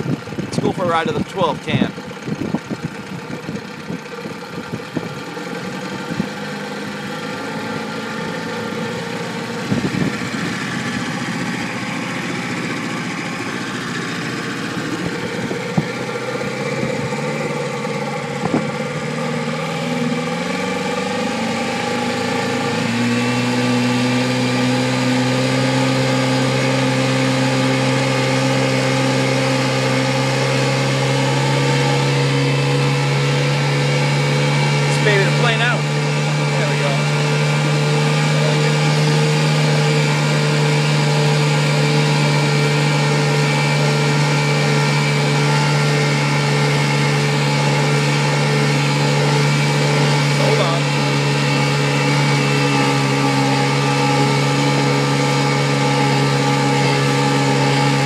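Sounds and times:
motorboat engine running: 0:00.0 - 0:58.0.

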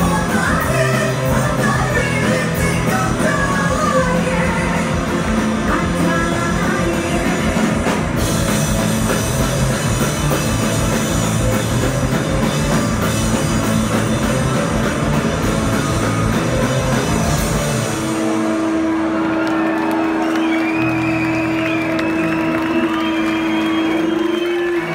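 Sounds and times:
woman singing: 0:00.0 - 0:08.1
drum kit: 0:00.0 - 0:19.3
electric guitar: 0:00.0 - 0:24.9.

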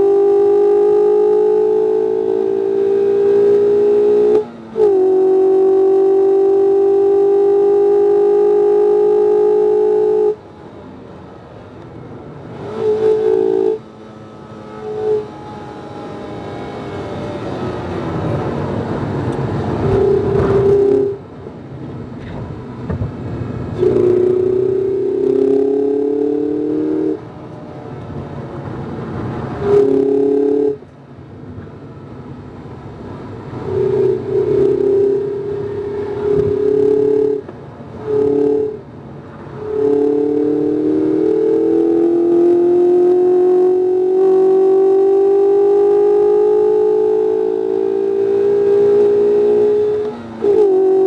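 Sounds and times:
car engine under load: 0:00.0 - 0:51.0.

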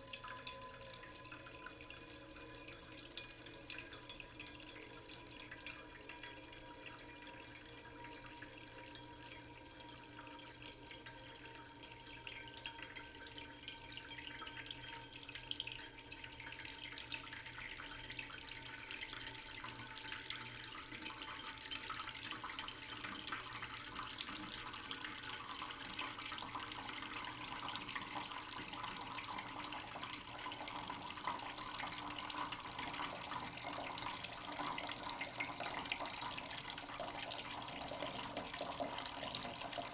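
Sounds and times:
tap water running into sink: 0:00.0 - 0:39.9.

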